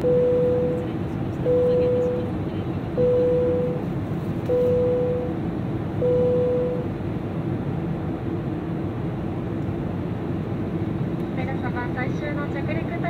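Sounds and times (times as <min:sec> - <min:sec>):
airliner cabin hum: 0:00.0 - 0:13.0
electronic beep: 0:03.0 - 0:03.8, 0:04.5 - 0:05.3, 0:06.0 - 0:06.8.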